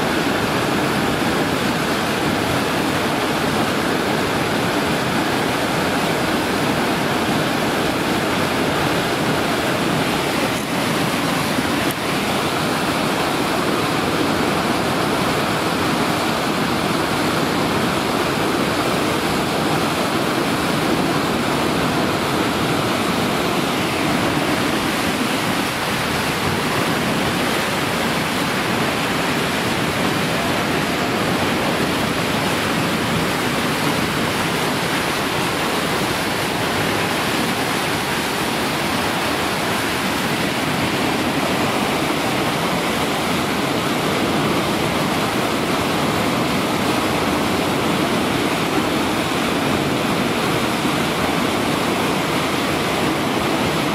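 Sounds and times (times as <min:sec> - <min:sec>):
river rapids roaring: 0:00.0 - 0:53.9.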